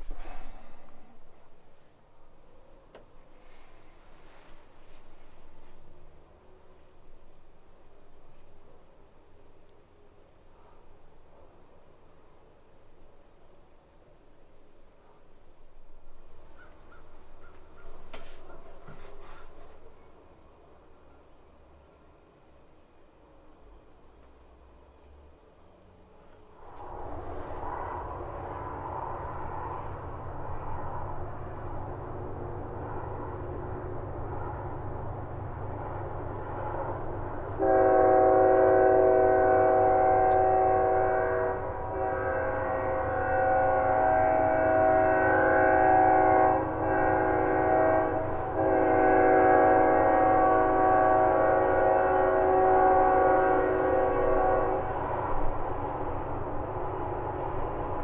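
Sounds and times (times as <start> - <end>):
locomotive air horn blasts: 37.6 - 55.0.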